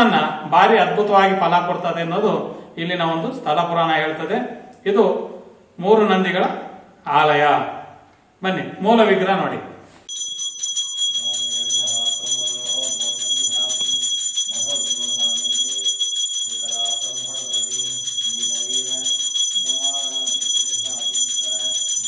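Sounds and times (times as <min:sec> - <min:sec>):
hand bell ringing rapidly: 0:10.1 - 0:22.0
man chanting: 0:11.2 - 0:22.0.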